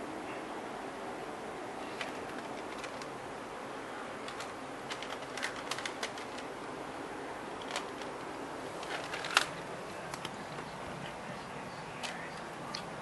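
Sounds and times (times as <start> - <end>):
steady low hiss: 0.0 - 13.0
cat crunching dry kibble: 4.2 - 6.7, 7.6 - 10.6.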